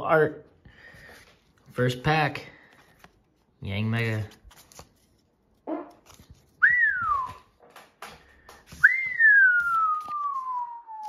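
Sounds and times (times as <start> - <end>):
person whistling sliding notes: 6.6 - 7.5, 8.7 - 11.0.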